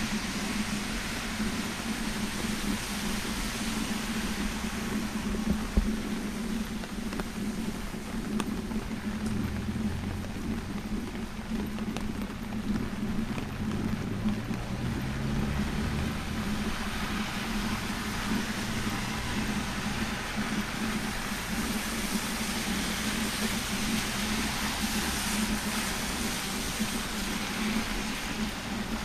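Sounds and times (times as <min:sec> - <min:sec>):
car engines running: 0:00.0 - 0:29.0
tyres hissing on wet road: 0:00.0 - 0:29.0
steady low hum: 0:04.4 - 0:24.6.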